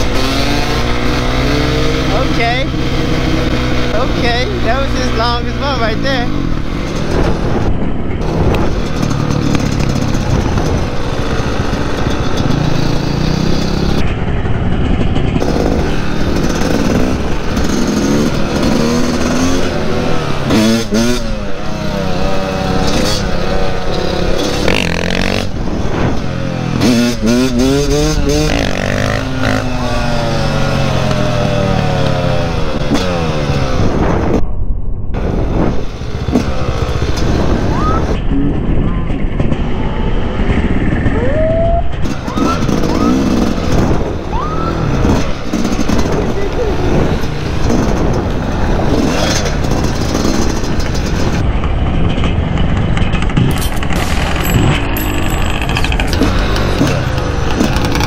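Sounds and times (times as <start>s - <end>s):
dirt bike engine revving: 0.0s - 34.4s, 35.2s - 38.7s, 41.9s - 58.0s
second dirt bike nearby: 0.0s - 34.4s, 35.3s - 58.0s.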